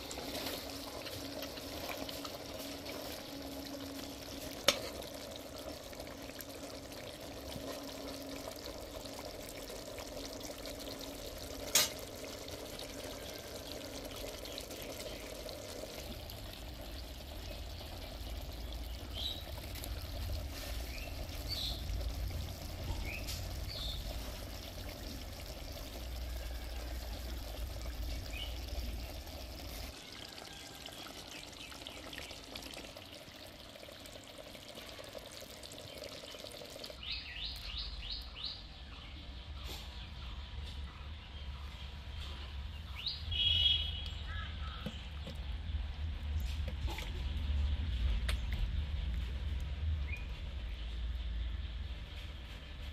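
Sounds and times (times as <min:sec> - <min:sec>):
sauce simmering and bubbling: 0:00.0 - 0:38.6.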